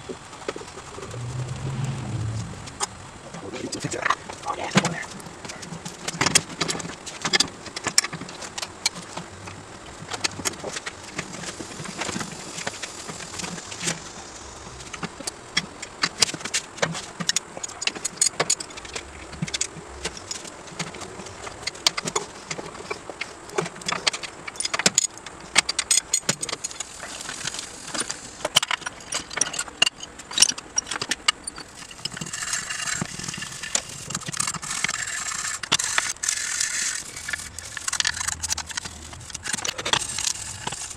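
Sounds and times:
small metal parts rattling: 23.8s - 40.9s.

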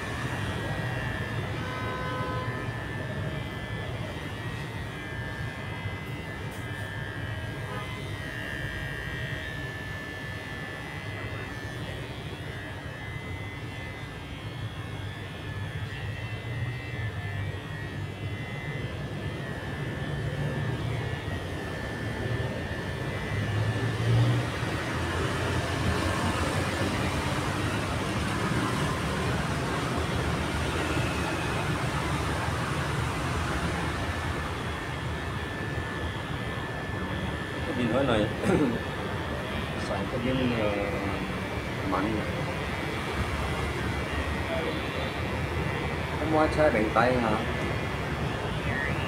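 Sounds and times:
electric hair clipper buzzing: 0.0s - 49.0s.

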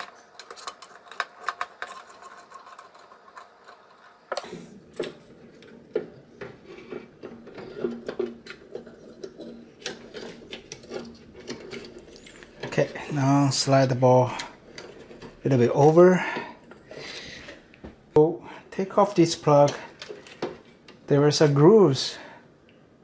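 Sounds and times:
wiring connectors clicking and rattling: 0.0s - 17.0s.

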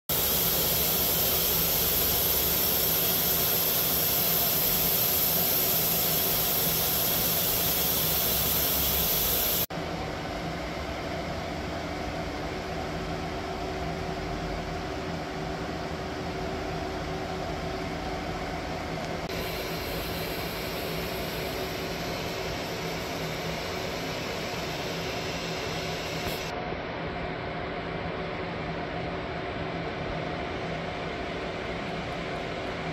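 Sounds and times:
machinery with high hiss: 0.1s - 9.7s, 19.2s - 26.6s
steady hum: 0.1s - 32.9s.

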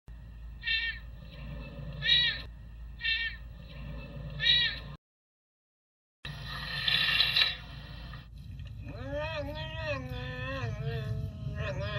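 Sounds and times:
serval meowing: 8.8s - 11.9s.

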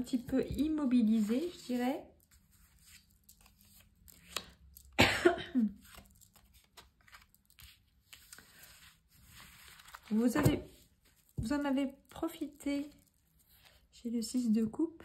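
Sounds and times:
cards rustling and tapping: 0.0s - 5.0s, 5.8s - 13.9s
person coughing: 5.0s - 5.8s.

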